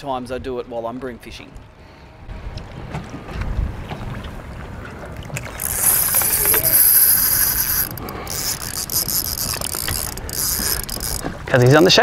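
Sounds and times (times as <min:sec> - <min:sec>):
fishing reel whirring: 0:05.4 - 0:12.0.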